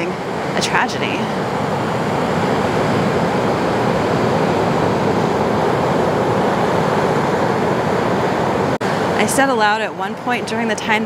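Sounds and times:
ocean surf: 0.0 - 11.0
wind: 0.0 - 11.0.

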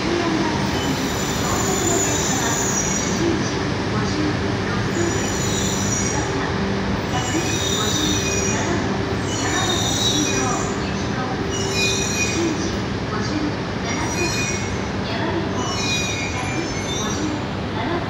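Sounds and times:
train rumbling: 0.0 - 18.0
high brake squeals: 7.2 - 10.8.

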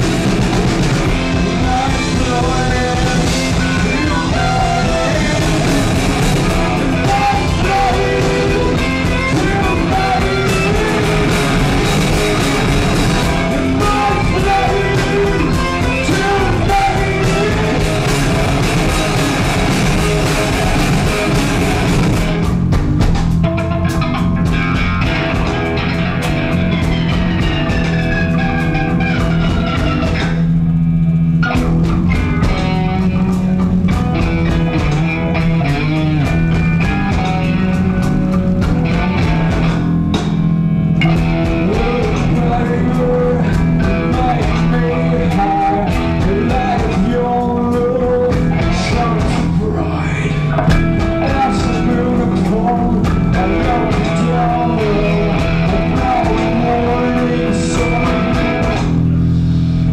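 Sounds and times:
live rock band playing: 0.0 - 59.9
sliding guitar notes: 0.0 - 59.9
person singing: 1.0 - 19.8, 41.0 - 59.0.

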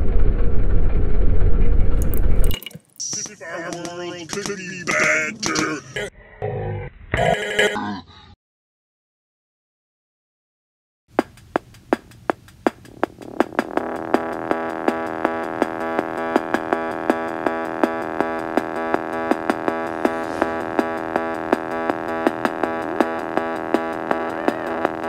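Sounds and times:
clicking electronic beat: 11.2 - 25.0
sustained synth chord: 13.1 - 25.0.

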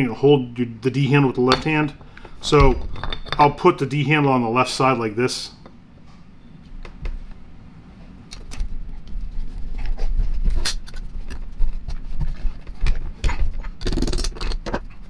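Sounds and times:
metal rattle: 1.5 - 3.6.

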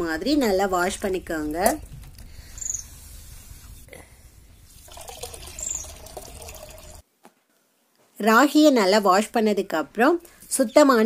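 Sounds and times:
water swishing in a pot: 4.6 - 7.0
water pouring into a pot: 4.8 - 7.0.

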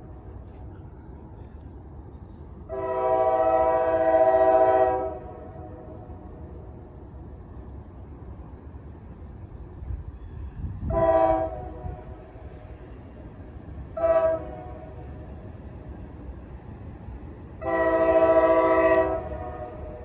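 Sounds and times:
locomotive air horn blasts: 2.7 - 6.0, 10.8 - 12.3, 14.0 - 15.0, 17.6 - 20.0.

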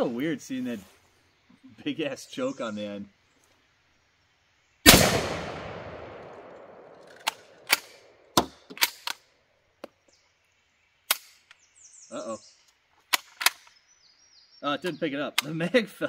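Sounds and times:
shotgun shot with echo: 4.9 - 7.9.

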